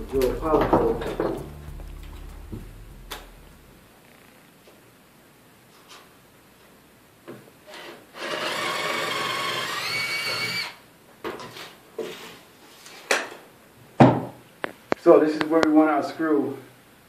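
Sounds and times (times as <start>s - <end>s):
cordless drill running: 8.2s - 10.8s.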